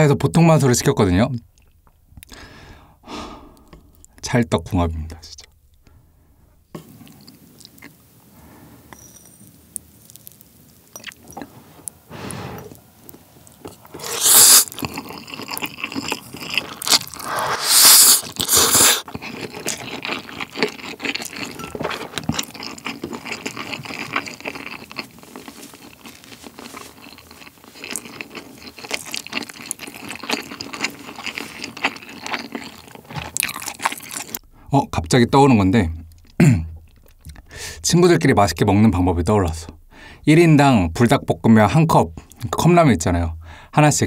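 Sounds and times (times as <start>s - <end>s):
wet chewing with mouth clicks: 1.4s - 2.4s, 6.7s - 8.0s, 8.8s - 37.9s
noodle slurping: 12.1s - 21.6s.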